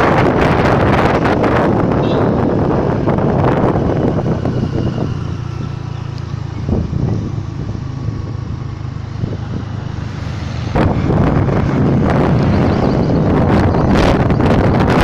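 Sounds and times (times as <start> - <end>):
road noise: 0.0 - 15.0
scooter engine hum: 0.0 - 15.0
wind buffeting microphone: 0.0 - 15.0.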